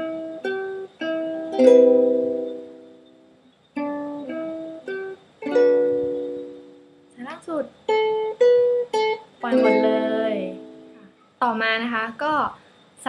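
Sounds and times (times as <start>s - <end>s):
ukulele chord ringing: 0.0s - 7.1s, 7.9s - 11.1s
ukulele plucked notes: 0.0s - 11.2s.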